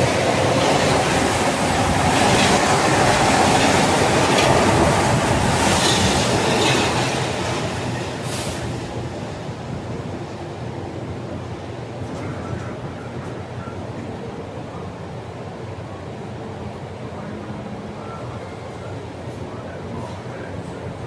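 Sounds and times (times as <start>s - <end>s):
train rolling rumble: 0.0s - 21.0s
high train squeals: 18.0s - 20.5s.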